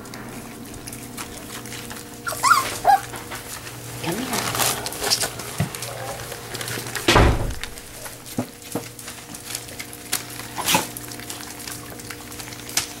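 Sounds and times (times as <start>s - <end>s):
heavy thump: 7.1s - 7.8s.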